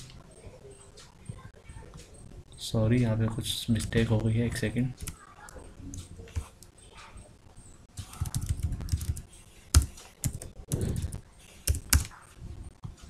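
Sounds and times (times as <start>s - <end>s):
typing on computer keyboard: 8.0s - 12.2s.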